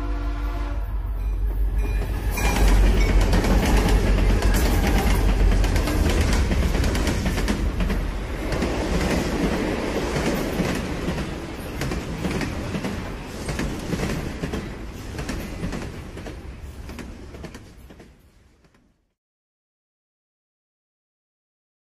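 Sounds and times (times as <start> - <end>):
heavy rolling rumble: 2.0 - 11.4.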